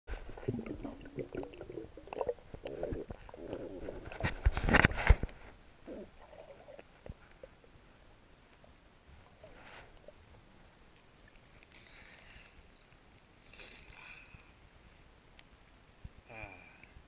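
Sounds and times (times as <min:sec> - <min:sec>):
underwater gurgling and bubbles: 0:00.1 - 0:11.7.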